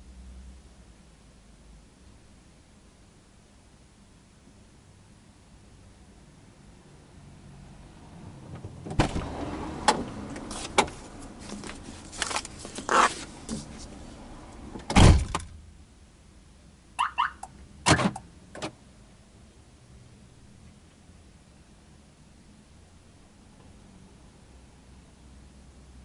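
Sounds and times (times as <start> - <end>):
car door shutting with thump: 8.6 - 10.1, 14.8 - 15.6, 17.8 - 18.8
car door opening: 8.6 - 11.0, 14.7 - 15.5, 17.8 - 18.8
rustling: 10.5 - 14.2.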